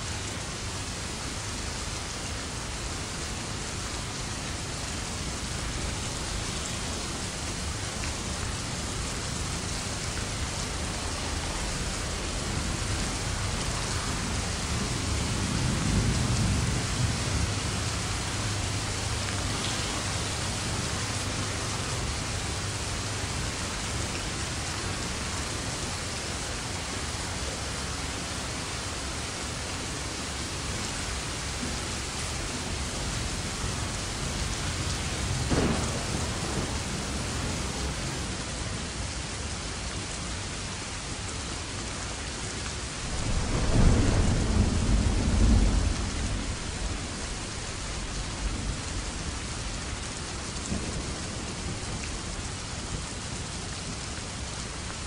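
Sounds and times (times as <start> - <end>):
steady rain falling: 0.0 - 55.0
thunder rumbling: 5.2 - 25.5, 30.2 - 38.4, 42.9 - 54.0.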